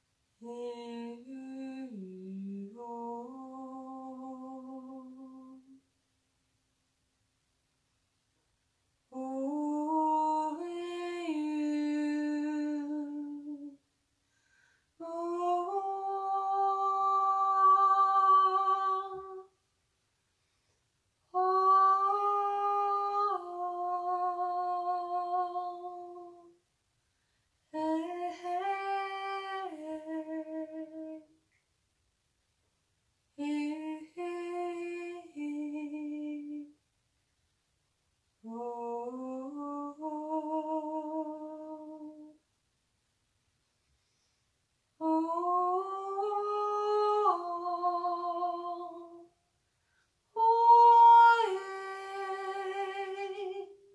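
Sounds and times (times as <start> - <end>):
woman singing wordless notes: 0.4 - 5.8, 9.1 - 13.8, 15.0 - 19.6, 21.3 - 26.6, 27.7 - 31.4, 33.4 - 36.8, 38.4 - 42.4, 45.0 - 49.4, 50.3 - 53.9.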